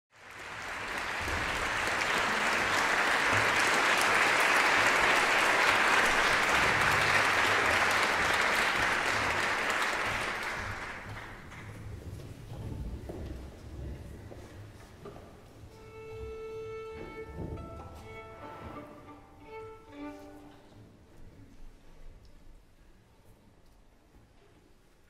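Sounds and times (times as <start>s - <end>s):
audience applauding: 0.1s - 11.8s.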